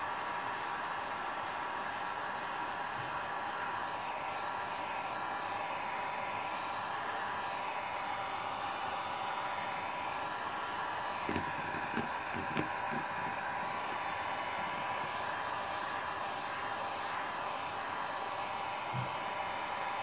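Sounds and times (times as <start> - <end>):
light knocks: 11.2 - 14.1
heat gun whining air rush: 11.2 - 19.7.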